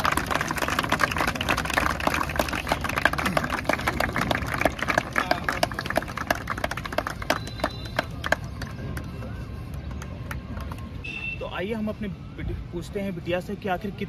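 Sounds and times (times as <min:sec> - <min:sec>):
group of people clapping: 0:00.0 - 0:11.0.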